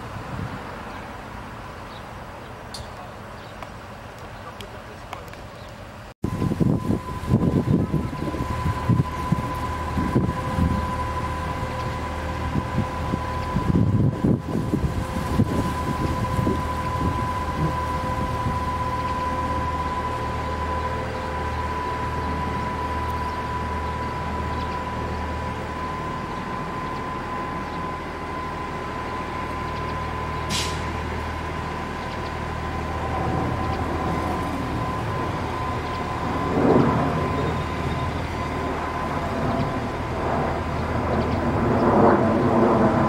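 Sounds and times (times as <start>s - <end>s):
crane engines droning with whine: 0.0s - 43.0s
brief hiss: 30.5s - 30.9s.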